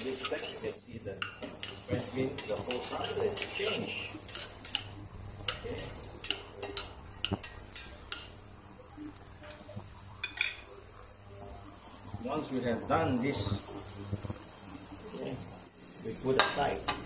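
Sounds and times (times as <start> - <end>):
utensil scraping a metal pot: 0.0 - 8.3.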